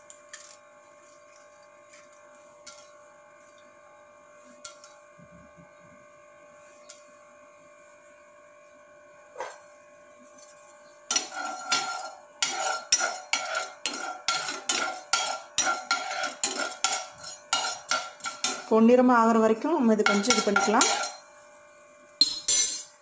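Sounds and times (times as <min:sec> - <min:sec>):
metal spoon scraping frying pan: 0:10.4 - 0:18.8, 0:20.0 - 0:21.4, 0:22.2 - 0:23.0.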